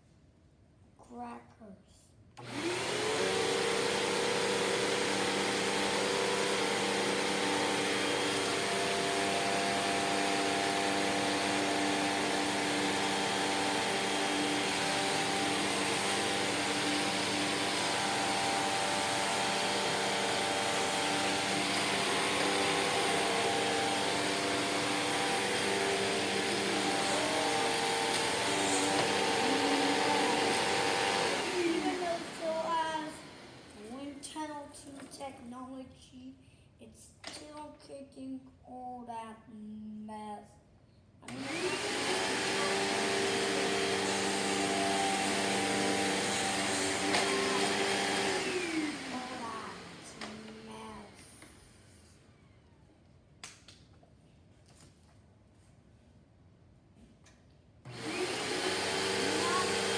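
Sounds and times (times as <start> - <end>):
upright vacuum cleaner running: 2.4 - 34.2, 41.3 - 51.9, 57.9 - 59.9.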